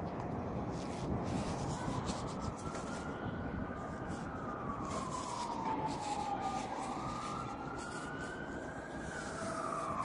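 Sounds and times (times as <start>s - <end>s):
siren wailing: 1.4s - 10.0s.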